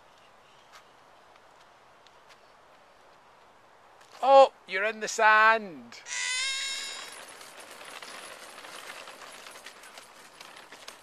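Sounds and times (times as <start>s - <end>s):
rustle with faint ticks: 0.0s - 4.2s, 7.0s - 11.0s
toddler squealing: 6.0s - 7.1s.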